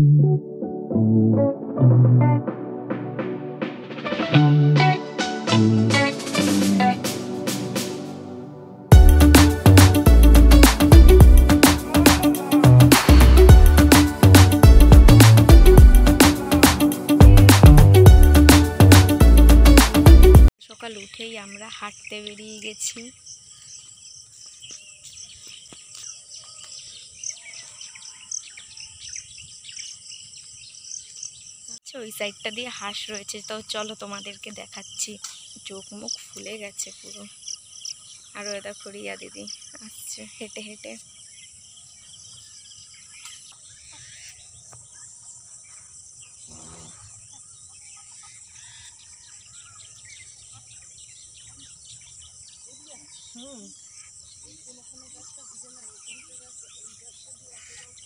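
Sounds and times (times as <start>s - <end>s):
crickets trilling: 20.6s - 47.3s, 51.0s - 58.0s
small birds chirping: 20.6s - 58.0s.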